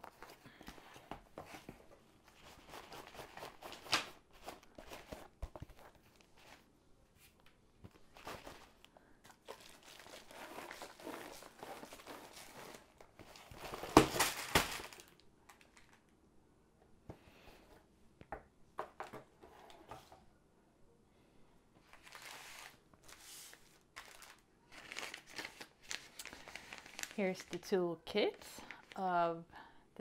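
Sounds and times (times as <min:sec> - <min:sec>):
cardboard and plastic rustling: 0:00.0 - 0:16.0, 0:21.8 - 0:27.7, 0:28.4 - 0:29.1.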